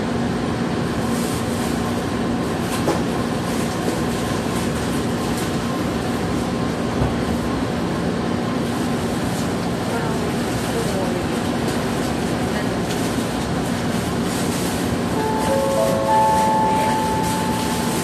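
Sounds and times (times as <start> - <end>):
train equipment hum: 14.3 - 18.0.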